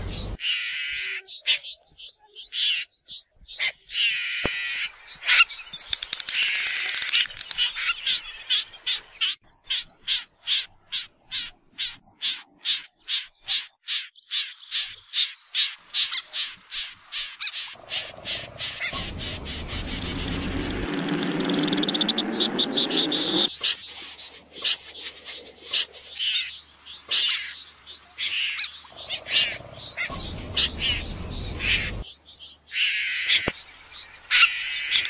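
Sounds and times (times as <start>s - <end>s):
snipe calling: 0.0s - 35.0s
low droning: 17.8s - 23.5s.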